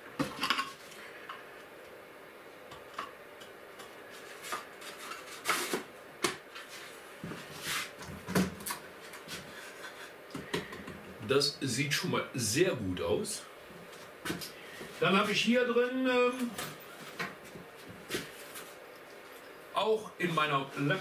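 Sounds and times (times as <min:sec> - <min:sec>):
objects rubbing and rustling: 0:03.8 - 0:11.2, 0:16.5 - 0:19.6.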